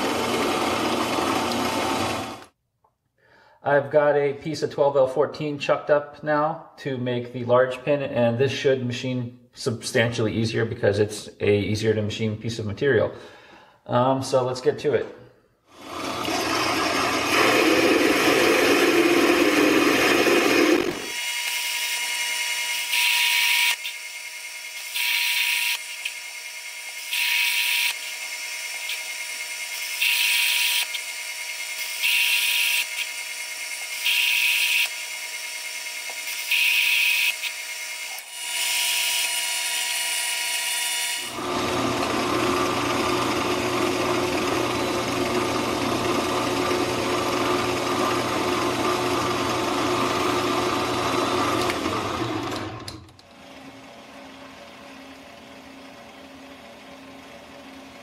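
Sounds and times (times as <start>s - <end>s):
metal lathe motor running: 0.0s - 2.4s, 15.8s - 58.0s.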